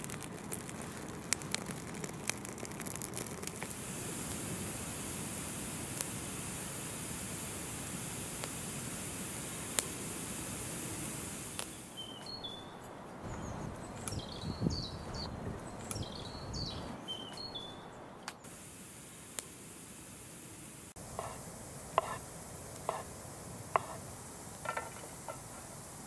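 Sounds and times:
campfire crackling: 0.0 - 16.9, 18.2 - 26.0
woodland ambience: 0.0 - 26.0
songbird chirping: 11.6 - 19.5.

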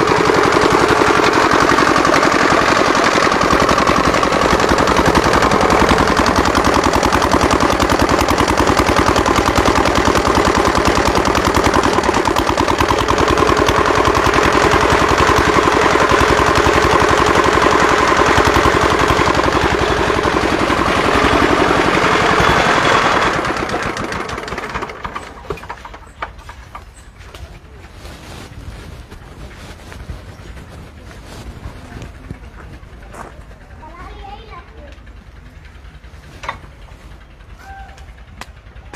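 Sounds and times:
chaff cutter chopping fodder: 0.0 - 27.9
diesel engine chugging: 0.0 - 38.9.

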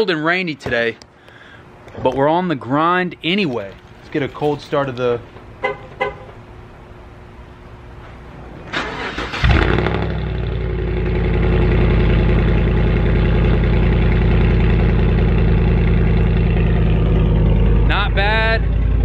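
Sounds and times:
truck engine starting and idling: 8.3 - 19.0.

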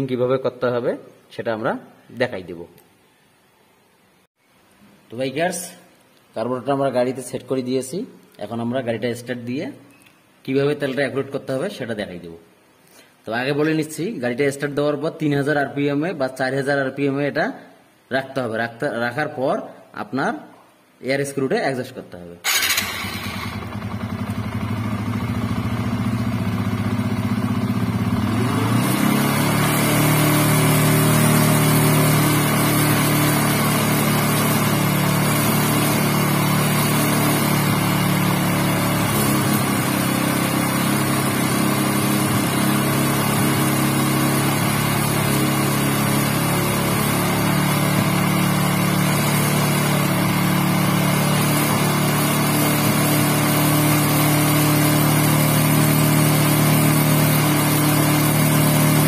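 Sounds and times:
motorcycle engine revving: 22.5 - 59.0.

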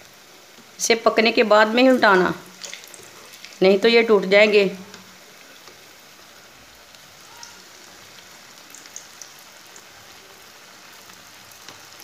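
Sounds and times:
hot oil sizzling: 0.0 - 12.0
oil popping: 2.5 - 3.6.

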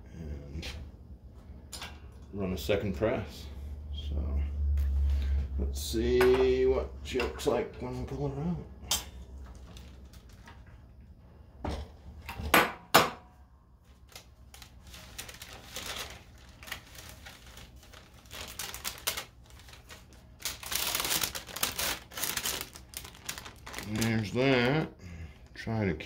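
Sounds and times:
parchment paper rustling: 9.4 - 10.7, 13.8 - 24.8.

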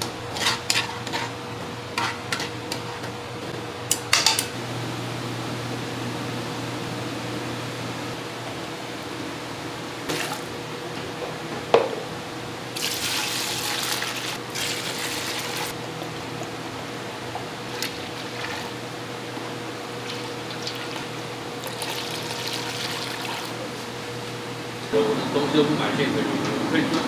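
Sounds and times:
low hum: 4.5 - 10.0.

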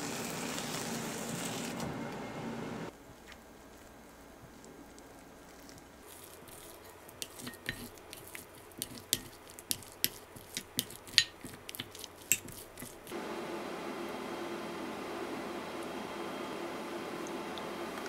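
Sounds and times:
soft wet squish: 3.3 - 13.1
fork and spoon scraping a bowl: 6.1 - 13.1.

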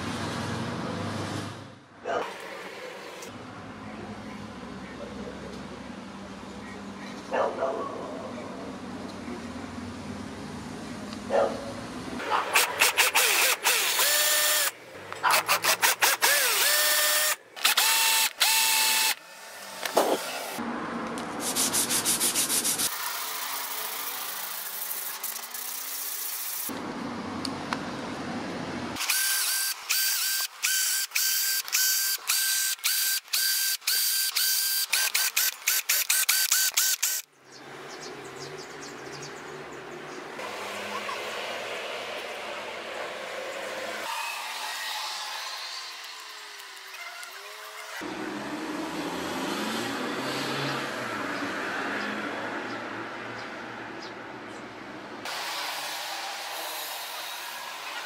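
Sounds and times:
tool scraping: 21.4 - 23.0.

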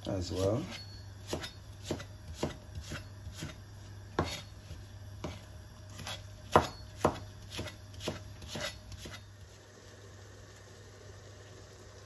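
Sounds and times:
knife chopping on cutting board: 0.4 - 9.3.

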